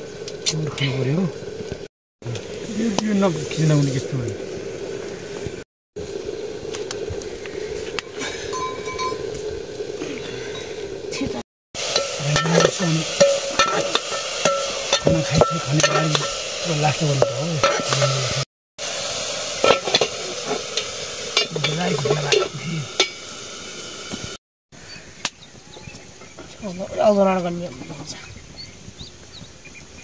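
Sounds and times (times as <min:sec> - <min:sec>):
food sizzling in a pan: 0:00.0 - 0:24.4
utensil scraping a pan: 0:11.8 - 0:18.4.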